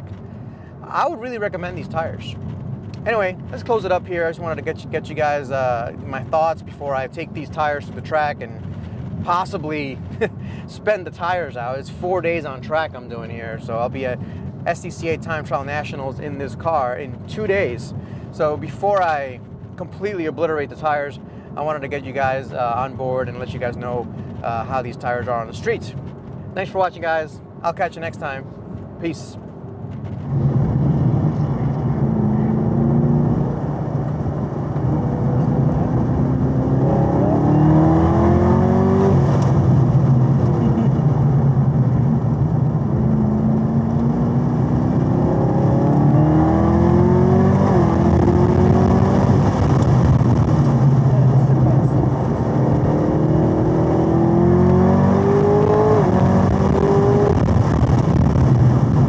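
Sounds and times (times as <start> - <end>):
car engine accelerating hard: 30.0 - 59.0.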